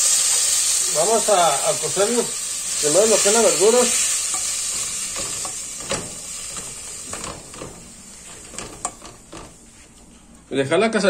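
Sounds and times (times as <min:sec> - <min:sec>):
vegetables sizzling in a metal pot: 0:00.0 - 0:09.8.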